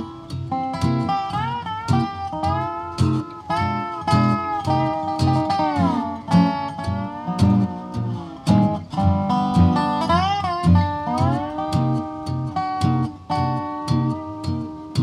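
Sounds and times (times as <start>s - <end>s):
acoustic guitar strumming: 0.0s - 15.0s
resonator guitar sliding melody: 0.0s - 15.0s.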